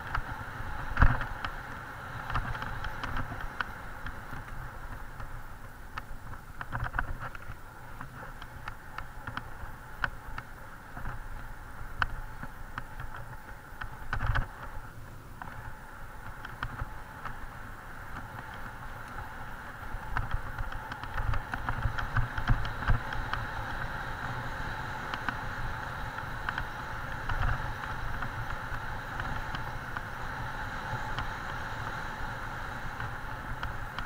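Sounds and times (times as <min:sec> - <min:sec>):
bike tyres rolling over dirt: 0:00.0 - 0:34.0
bike rattling and knocking: 0:15.4 - 0:34.0.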